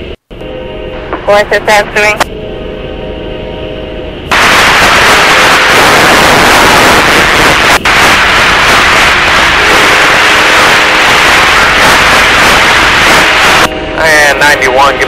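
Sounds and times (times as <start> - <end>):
radio static hiss: 1.0 - 2.3, 4.3 - 15.0.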